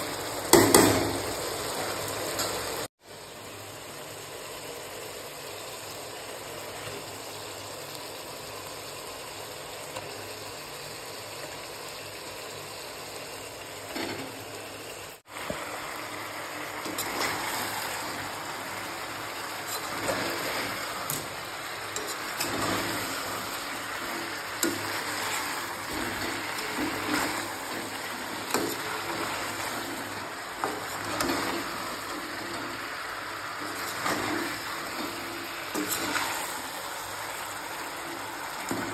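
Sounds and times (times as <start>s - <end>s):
fish sizzling in a pan: 0.0s - 38.9s
steady hiss: 0.0s - 38.9s
metal spatula scraping pan: 19.6s - 29.8s, 33.6s - 36.6s.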